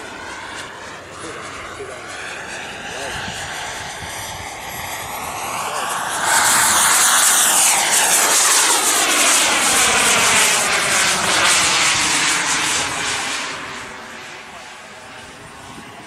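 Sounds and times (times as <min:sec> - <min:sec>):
jet model airplane passing: 0:00.0 - 0:16.0.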